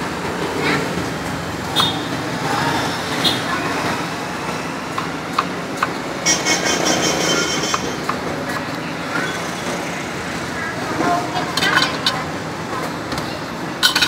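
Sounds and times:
street traffic noise: 0:00.0 - 0:14.0
high-pitched vehicle horn: 0:06.2 - 0:08.0.

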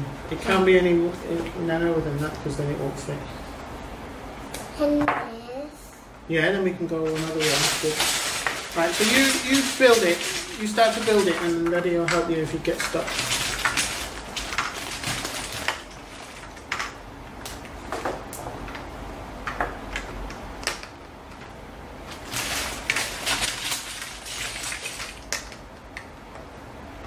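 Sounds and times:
plastic bag rustling: 0:06.9 - 0:18.3, 0:22.0 - 0:25.7
plastic bricks clicking and clattering: 0:07.1 - 0:17.0, 0:22.2 - 0:25.6.

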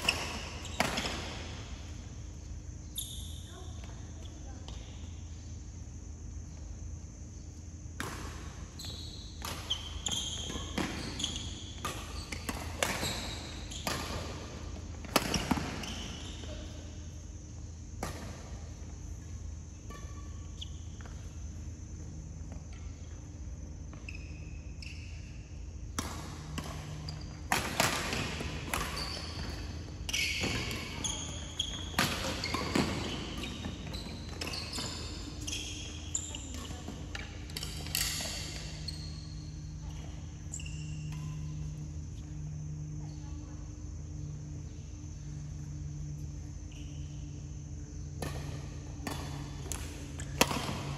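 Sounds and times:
steady low hum: 0:00.0 - 0:50.9
shoe squeaks: 0:08.8 - 0:13.9, 0:15.8 - 0:16.8, 0:24.0 - 0:25.4, 0:28.8 - 0:41.8
rackets hitting shuttlecock: 0:09.4 - 0:14.2, 0:25.9 - 0:30.8, 0:48.2 - 0:50.9.

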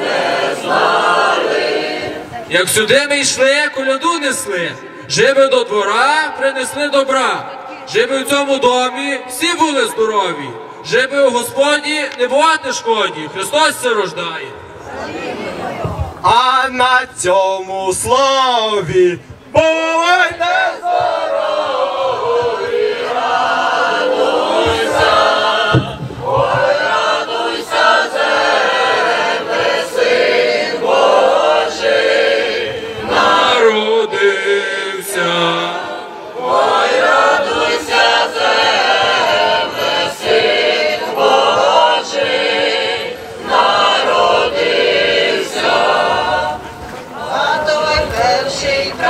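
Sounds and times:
choir singing a carol: 0:00.0 - 0:02.5, 0:20.2 - 0:49.0.

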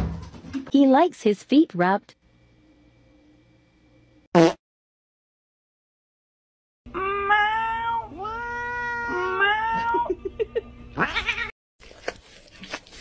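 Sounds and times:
cat meowing: 0:07.0 - 0:10.1, 0:11.0 - 0:11.5.

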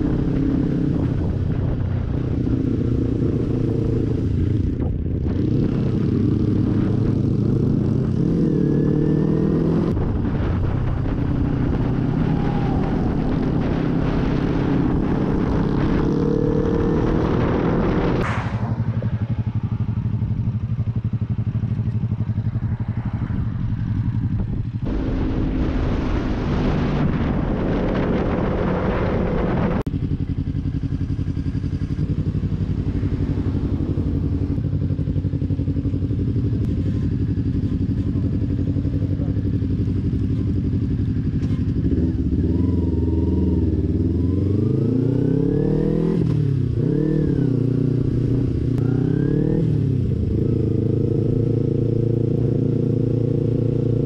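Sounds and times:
wind rush: 0:00.0 - 0:08.4, 0:09.3 - 0:21.2, 0:22.5 - 0:35.4
motorcycle engine running: 0:00.0 - 0:54.0
motorcycle engines idling: 0:18.2 - 0:25.2, 0:29.9 - 0:44.0.

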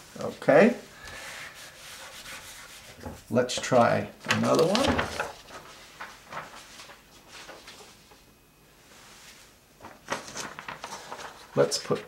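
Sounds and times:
paper rustling: 0:02.0 - 0:08.3, 0:09.1 - 0:12.0.

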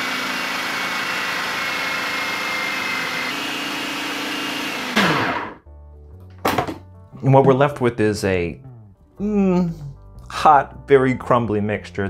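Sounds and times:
food processor motor whirring: 0:00.0 - 0:05.6.

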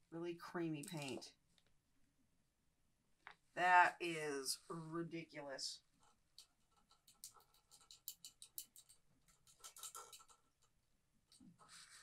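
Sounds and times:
faint scratching and ticks: 0:05.9 - 0:12.0.

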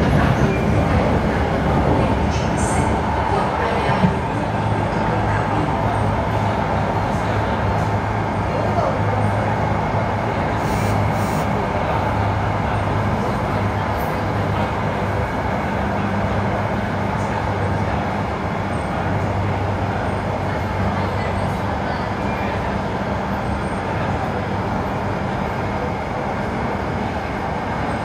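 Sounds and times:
train wheels rumbling: 0:00.0 - 0:28.0.

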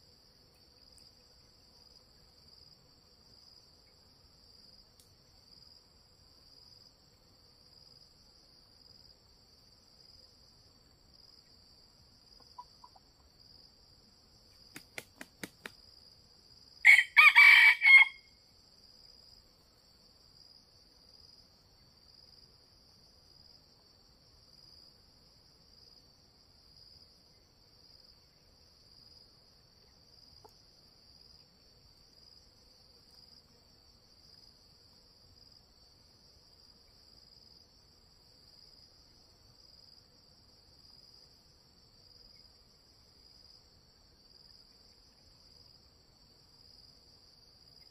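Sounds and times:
insect trill: 0:00.0 - 0:47.9
rooster crowing: 0:16.8 - 0:18.4.

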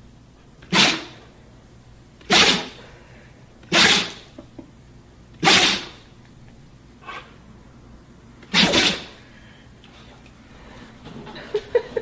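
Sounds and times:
dog sneezing: 0:00.6 - 0:01.3, 0:02.2 - 0:02.8, 0:03.6 - 0:04.4, 0:05.4 - 0:06.0, 0:08.4 - 0:09.2.

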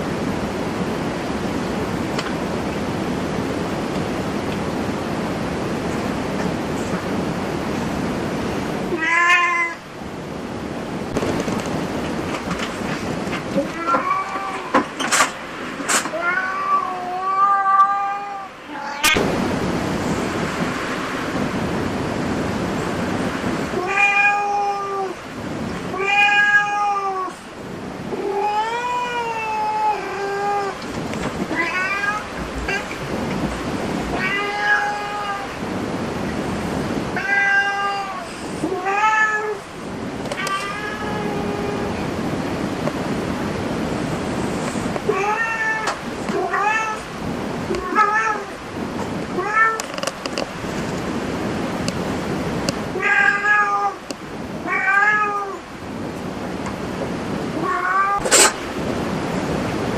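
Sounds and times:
cat meowing: 0:08.9 - 0:09.8, 0:13.6 - 0:14.8, 0:16.0 - 0:19.2, 0:23.8 - 0:25.2, 0:25.9 - 0:27.4, 0:28.1 - 0:30.8, 0:31.5 - 0:32.9, 0:34.1 - 0:35.5, 0:37.1 - 0:39.6, 0:40.3 - 0:42.0, 0:45.0 - 0:47.1, 0:47.7 - 0:48.6, 0:49.4 - 0:50.1, 0:52.9 - 0:54.0, 0:54.6 - 0:55.6, 0:57.6 - 0:58.6.

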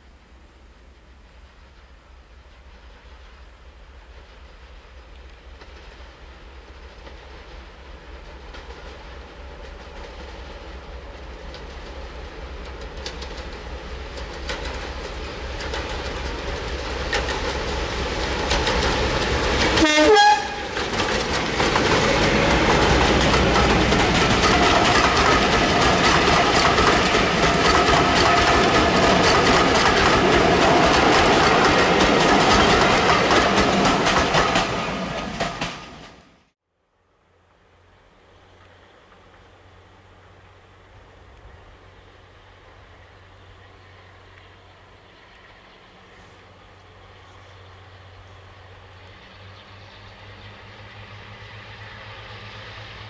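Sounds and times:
diesel locomotive engine: 0:00.0 - 0:36.6, 0:37.2 - 0:53.0
train wheels clattering over rail joints: 0:04.1 - 0:36.3.

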